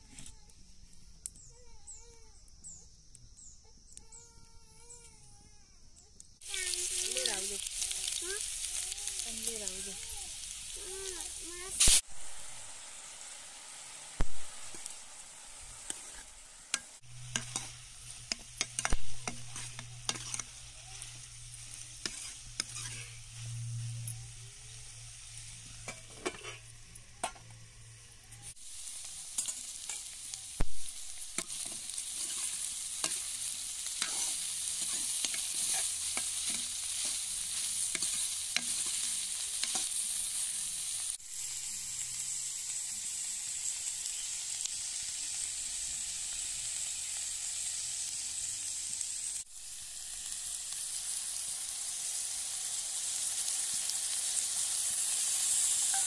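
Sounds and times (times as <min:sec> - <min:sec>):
food sizzling in hot oil: 0:06.3 - 0:56.0
utensil scraping a pan: 0:17.2 - 0:20.6, 0:22.0 - 0:23.3, 0:25.8 - 0:27.4, 0:34.0 - 0:37.3.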